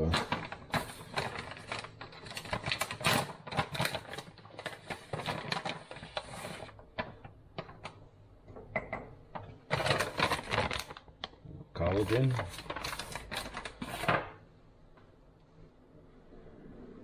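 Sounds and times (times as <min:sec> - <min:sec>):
plastic pouch crinkling: 0:00.0 - 0:08.0, 0:09.6 - 0:14.2.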